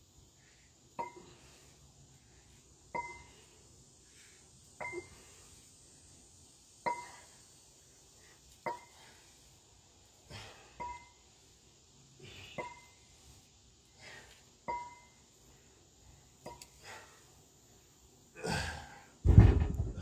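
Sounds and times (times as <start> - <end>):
metal dumbbells clinking: 2.9 - 3.3, 10.8 - 11.2, 14.7 - 15.2.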